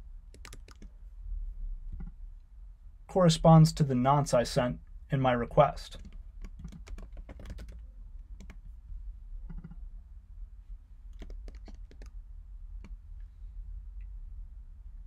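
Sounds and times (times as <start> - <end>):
keyboard key presses: 0.3 - 0.9, 6.0 - 7.8, 9.5 - 9.8, 11.1 - 12.1.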